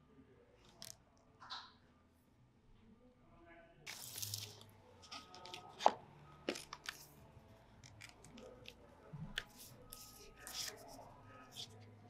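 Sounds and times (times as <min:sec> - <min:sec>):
paper rustling: 0:03.9 - 0:07.2, 0:09.4 - 0:11.8.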